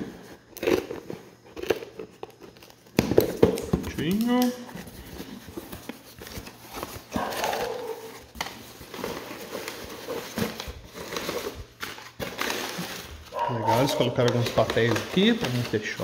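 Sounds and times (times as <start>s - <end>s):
crumpled paper rustling: 0.0s - 16.0s
plastic bag rustling: 3.9s - 16.0s.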